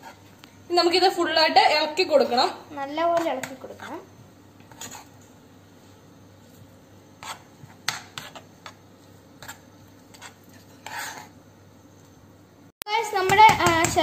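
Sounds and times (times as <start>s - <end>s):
metal spoon scraping frying pan: 3.2s - 5.2s, 7.2s - 8.8s, 9.4s - 11.4s.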